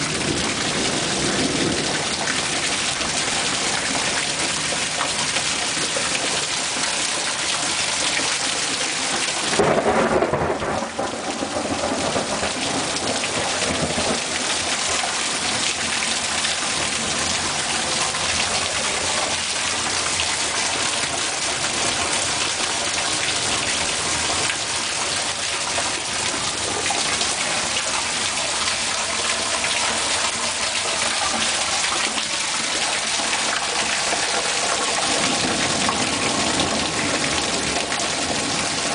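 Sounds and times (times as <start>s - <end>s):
thunder clap rumbling: 0.0s - 4.8s, 9.4s - 20.9s, 25.2s - 38.9s
heavy rain pouring: 0.0s - 38.9s.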